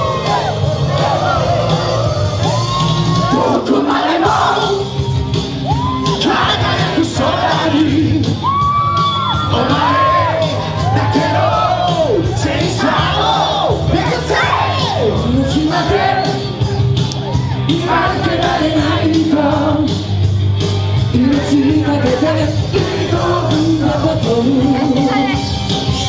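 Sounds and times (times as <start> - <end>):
audience shouting: 0.0 - 7.8, 8.4 - 19.0
loud rock music: 0.0 - 26.0
men singing: 3.2 - 5.0, 6.0 - 8.5, 9.2 - 16.6, 17.6 - 20.0, 21.1 - 25.2.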